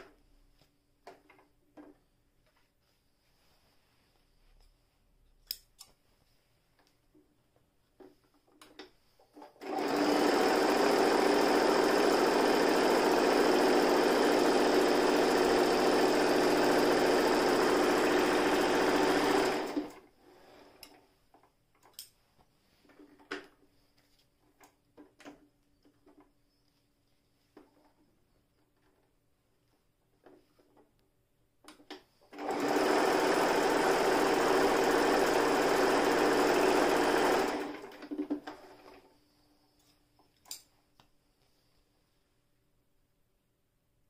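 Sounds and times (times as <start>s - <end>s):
sewing machine running: 9.6s - 20.8s, 32.3s - 39.1s.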